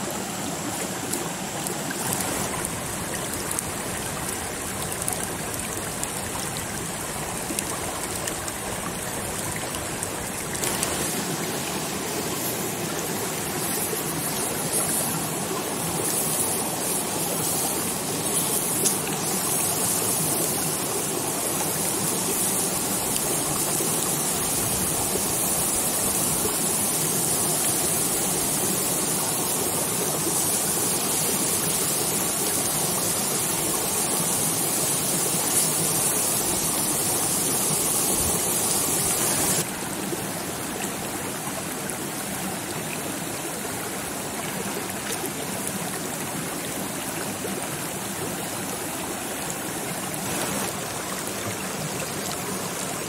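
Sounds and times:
stream flowing: 0:00.0 - 0:53.0.

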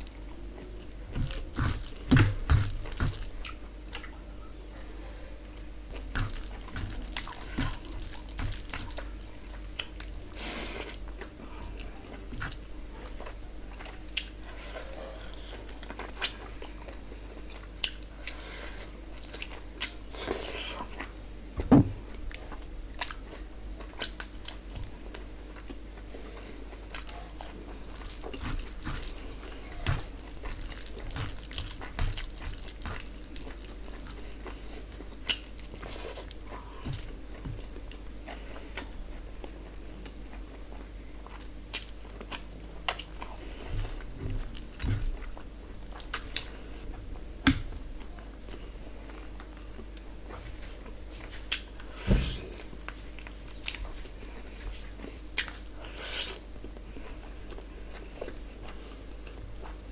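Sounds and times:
chewing and lip smacks: 0:22.2 - 0:46.6, 0:51.1 - 0:51.9, 0:52.8 - 0:59.8.

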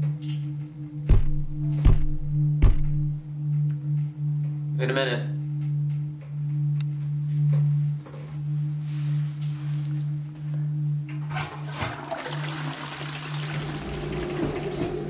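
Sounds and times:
low steady hum: 0:00.0 - 0:15.0
toilet flushing: 0:11.3 - 0:15.0.

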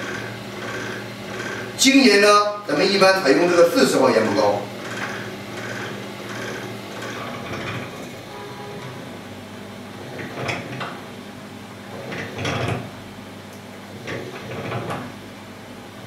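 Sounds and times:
lapping tool motor hum: 0:00.0 - 0:01.9, 0:02.9 - 0:09.2.

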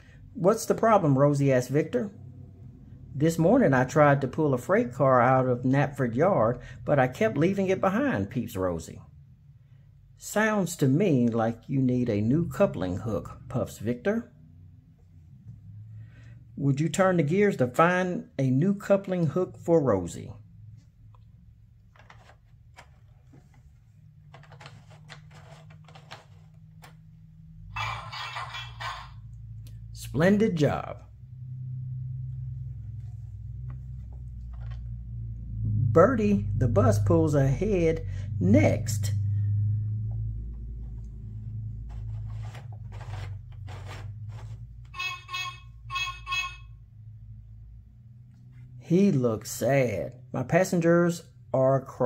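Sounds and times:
plastic gear wheels scraping: 0:24.3 - 0:26.9, 0:41.9 - 0:45.1
tinny electronic bus horn beeps: 0:44.9 - 0:47.0.

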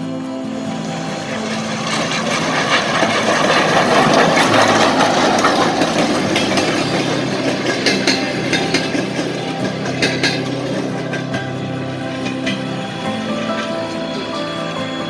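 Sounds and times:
steam locomotive passing: 0:00.0 - 0:15.0
wheels clicking and clanking: 0:00.0 - 0:15.0.

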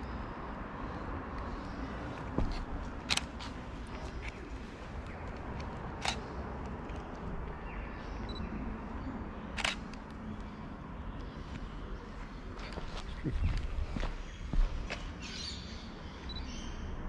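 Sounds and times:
low background noise: 0:00.0 - 0:17.0
camera shutter clicks: 0:03.1 - 0:03.4, 0:06.0 - 0:06.3, 0:09.6 - 0:10.0.

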